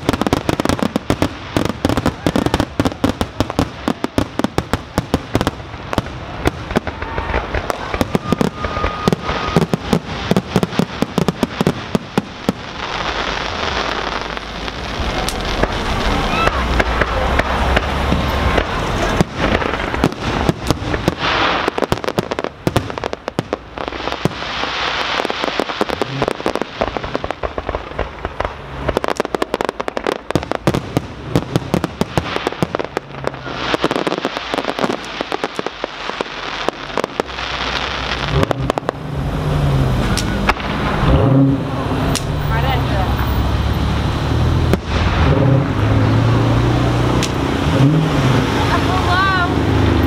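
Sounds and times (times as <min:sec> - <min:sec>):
crackling hiss of fireworks: 0:00.0 - 0:50.0
fireworks bangs and pops: 0:00.0 - 0:50.0.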